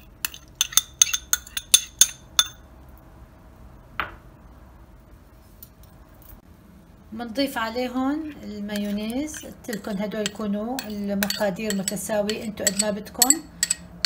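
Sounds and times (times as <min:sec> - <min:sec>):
metal spoon clinking on bowl: 0:00.2 - 0:02.7, 0:08.8 - 0:14.0.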